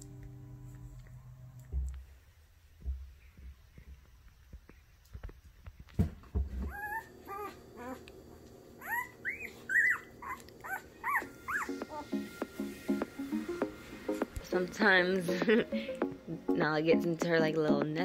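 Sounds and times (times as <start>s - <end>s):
dog whining: 6.6s - 8.1s, 8.8s - 12.2s.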